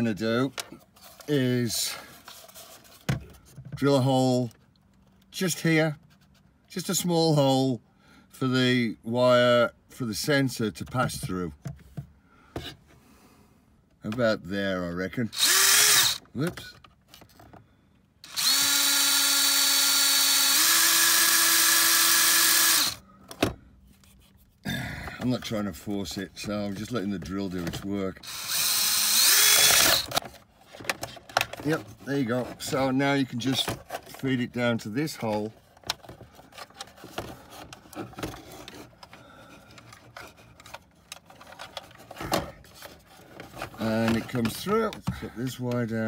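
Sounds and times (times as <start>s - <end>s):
cordless drill boring: 15.3s - 16.3s, 18.2s - 23.0s, 28.2s - 30.2s.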